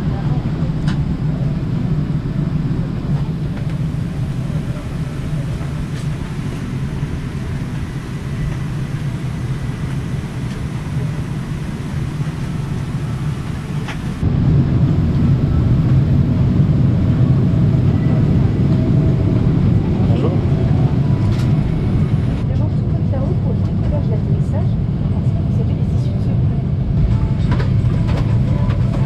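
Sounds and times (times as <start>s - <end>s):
cabin ventilation rumble and hiss: 0.8s - 14.2s.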